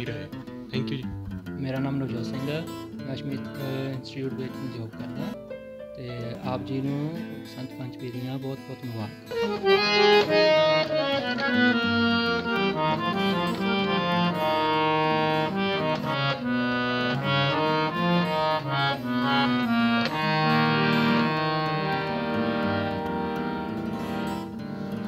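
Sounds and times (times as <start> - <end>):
harmonium melody: 0.0 - 25.0.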